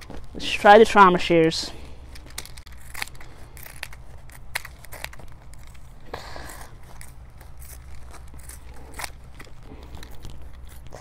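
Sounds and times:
shears cutting through denim: 2.6s - 11.0s.

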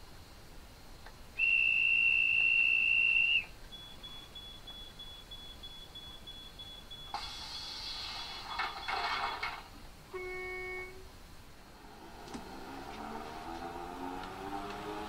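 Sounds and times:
faint fast beeping: 1.4s - 7.2s
high whistle tone: 1.4s - 7.2s, 10.1s - 11.0s
air hissing: 7.1s - 8.6s.

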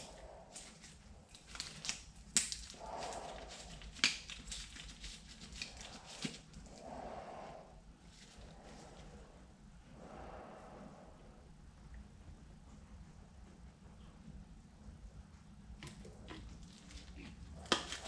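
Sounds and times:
soft breathing: 0.0s - 1.3s, 2.7s - 4.0s, 5.6s - 11.7s.

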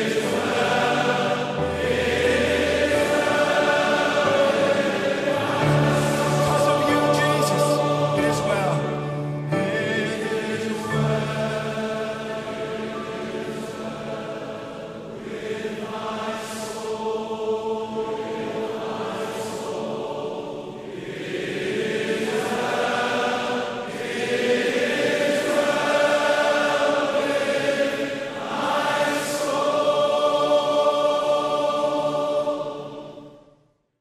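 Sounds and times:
voices singing a slow hymn: 0.0s - 33.6s.

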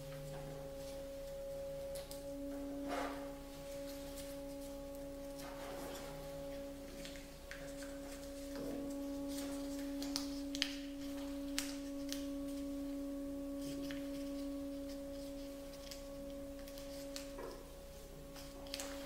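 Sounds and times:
steady pure tone: 0.0s - 19.0s
paper crackling as creased: 3.7s - 12.9s, 13.5s - 17.6s, 18.3s - 19.0s.

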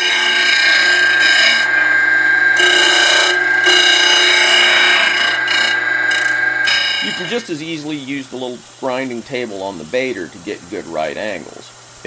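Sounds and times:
disc grinder whine: 0.0s - 7.8s
steel grinding hiss: 0.0s - 9.6s.

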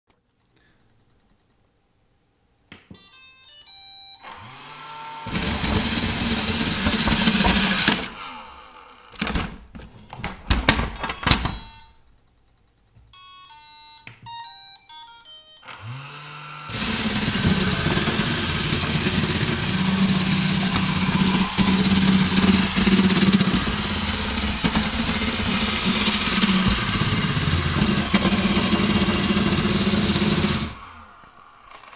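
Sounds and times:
robot vacuum beep tune: 3.0s - 4.3s, 11.0s - 12.0s, 13.2s - 15.7s
vacuum motors whirring: 4.2s - 9.3s, 15.6s - 31.9s.

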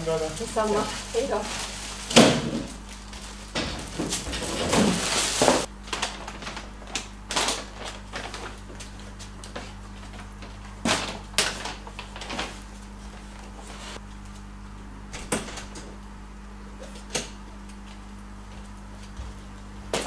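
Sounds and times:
plastic bags rustling: 0.0s - 14.0s
bags knocking on floor: 1.6s - 2.8s, 3.5s - 5.7s.

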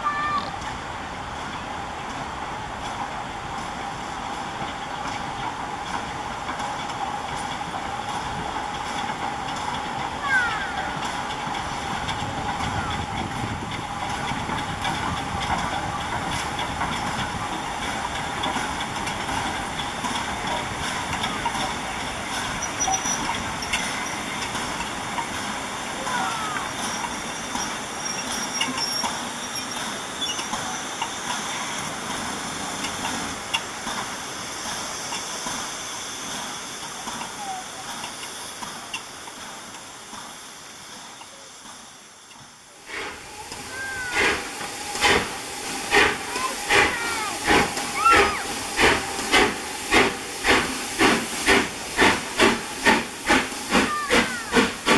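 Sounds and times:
train rumbling: 0.0s - 54.9s
steam hissing: 0.1s - 54.9s.

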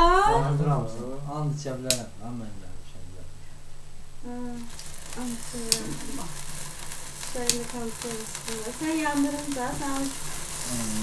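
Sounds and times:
people's voices: 0.0s - 3.3s, 4.2s - 6.4s, 7.3s - 11.0s
sparkler sizzling hiss: 4.1s - 11.0s
sparkler pops: 4.2s - 11.0s.

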